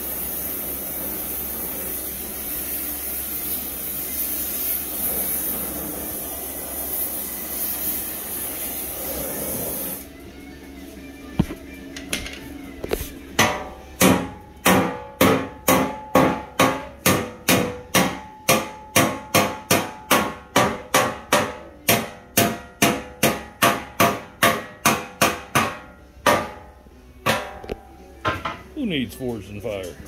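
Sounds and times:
hammer striking hot steel: 0:13.4 - 0:28.6.

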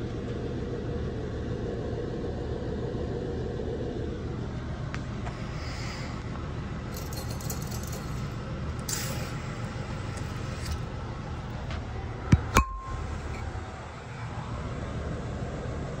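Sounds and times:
steady low rumble: 0:00.0 - 0:16.0
ringing clink: 0:06.9 - 0:10.9, 0:12.5 - 0:13.4.

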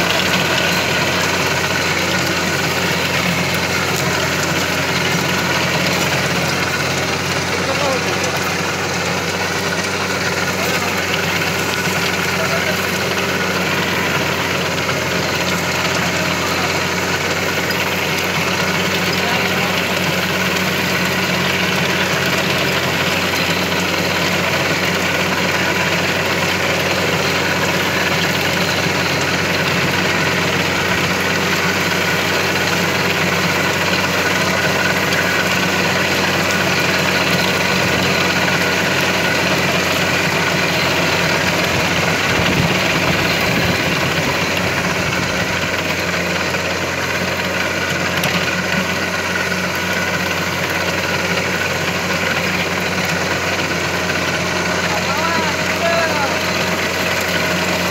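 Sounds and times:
rotavator churning soil: 0:00.0 - 0:57.9
tractor diesel engine under load: 0:00.0 - 0:57.9.

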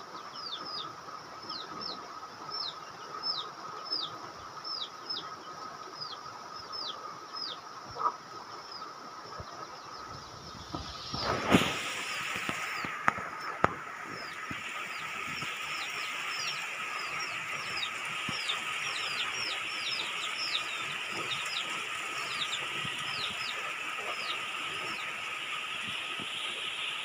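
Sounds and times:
steady rain: 0:00.0 - 0:27.0
high falling bird chirps: 0:01.5 - 0:27.0
thin steady whine: 0:05.8 - 0:27.0.

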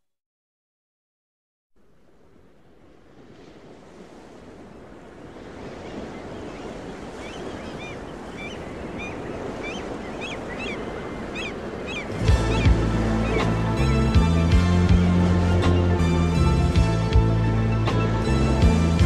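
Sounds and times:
ocean surf: 0:01.8 - 0:19.0
small birds chirping: 0:05.7 - 0:13.5.

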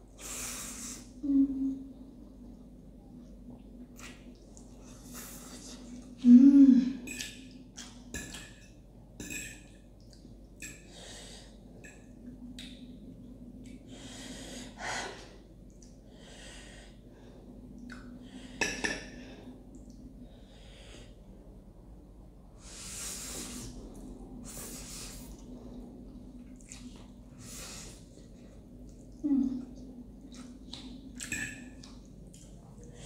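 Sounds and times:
person chewing noodles: 0:26.4 - 0:29.2.

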